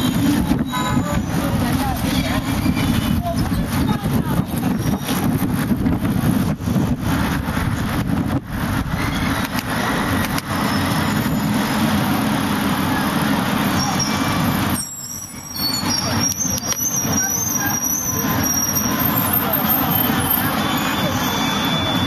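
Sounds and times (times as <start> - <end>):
wind rumble on microphone: 0.0 - 14.7
city road traffic: 0.0 - 22.0
thin high squeal: 13.8 - 22.0.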